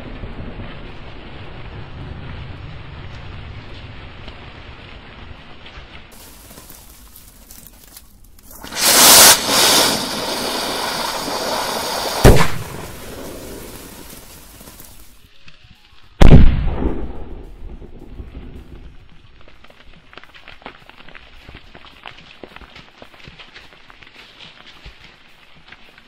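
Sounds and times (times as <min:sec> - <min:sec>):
firework hissing: 0:08.4 - 0:15.2
firework bang: 0:08.5 - 0:14.7, 0:16.2 - 0:17.9.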